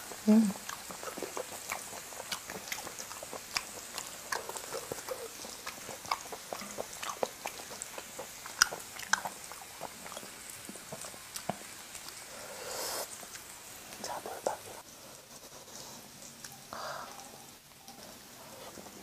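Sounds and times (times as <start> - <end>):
person chewing with mouth open: 0.0 - 12.4.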